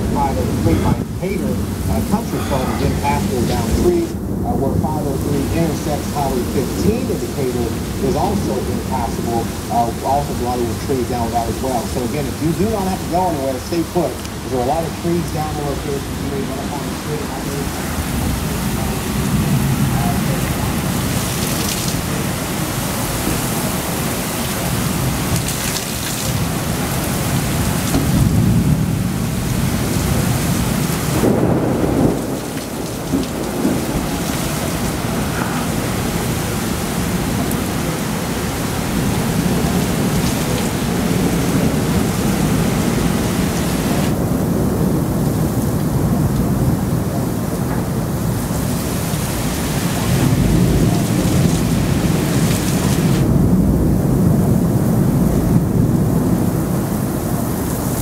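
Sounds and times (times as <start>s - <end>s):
heavy rain pouring: 0.0s - 58.0s
thunder rumbling: 0.0s - 58.0s.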